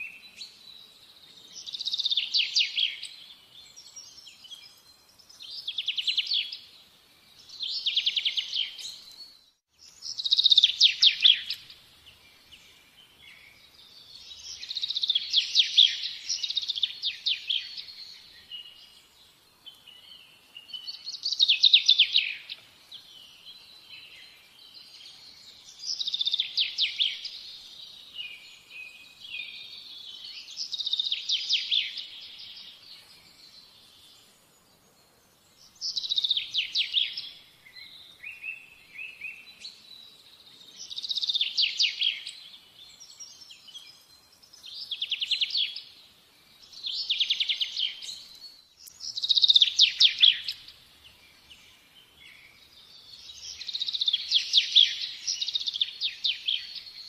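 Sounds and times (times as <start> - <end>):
songbird trilling: 10.1 - 11.8, 25.7 - 27.6, 35.8 - 39.6, 46.6 - 50.8, 53.2 - 57.0.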